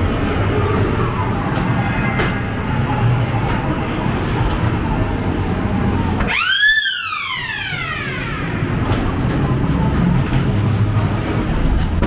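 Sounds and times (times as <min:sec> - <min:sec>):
ride car rumbling on track: 0:00.0 - 0:12.0
pitched wail: 0:06.2 - 0:09.2.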